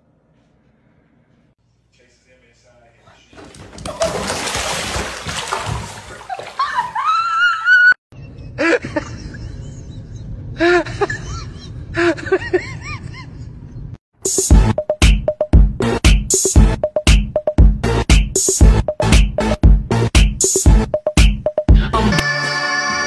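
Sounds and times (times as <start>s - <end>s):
water splashing in bathtub: 3.2s - 7.5s.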